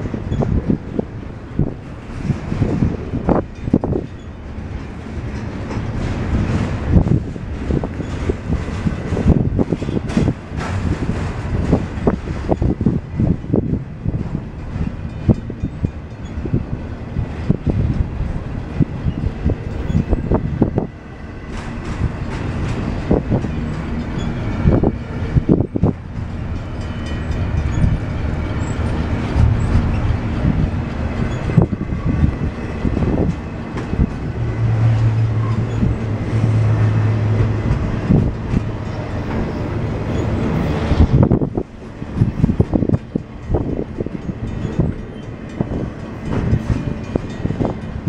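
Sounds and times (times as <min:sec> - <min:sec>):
freight cars knocking and rattling: 0:00.0 - 0:48.0
train wheels rumbling: 0:00.0 - 0:48.0.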